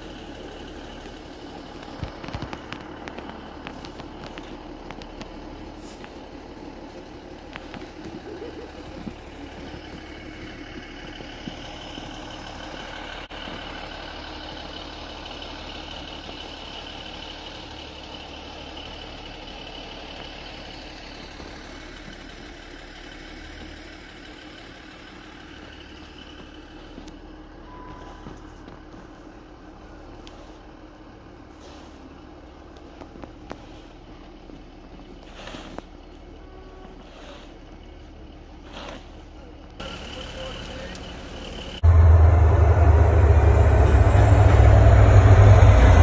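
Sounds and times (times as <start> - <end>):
diesel train engine idling: 0.0 - 46.0.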